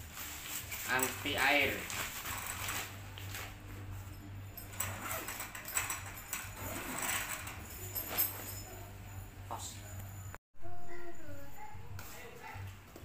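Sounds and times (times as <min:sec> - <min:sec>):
nylon fabric rustling: 0:00.0 - 0:03.8
steady low hum: 0:00.0 - 0:12.9.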